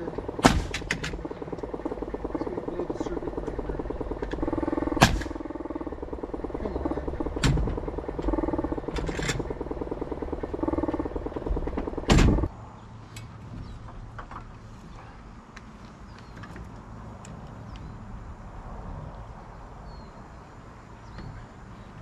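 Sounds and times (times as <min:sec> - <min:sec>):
air compressor running: 0:00.0 - 0:12.5
nail gun shots: 0:00.4 - 0:01.2, 0:05.0 - 0:05.4, 0:12.1 - 0:12.4.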